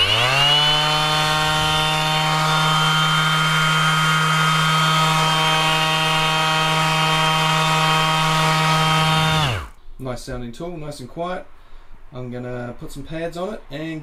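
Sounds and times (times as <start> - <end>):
orbit sander motor humming: 0.0 - 9.8.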